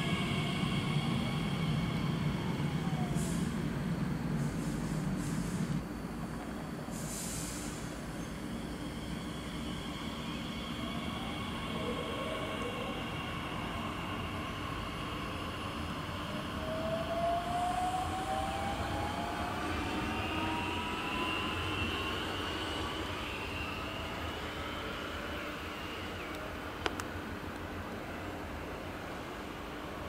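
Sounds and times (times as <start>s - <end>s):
electric train drive whine: 0.0s - 30.0s
train rumbling on track: 0.0s - 30.0s.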